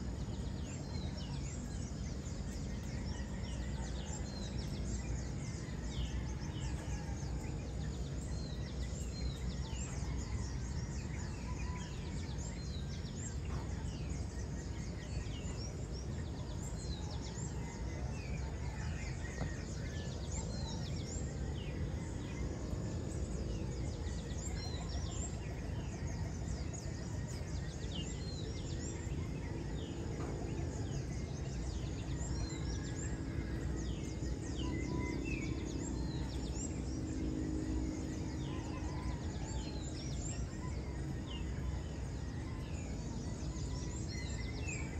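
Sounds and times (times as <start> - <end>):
birds chirping: 0.0 - 44.9
low background rumble: 0.0 - 44.9.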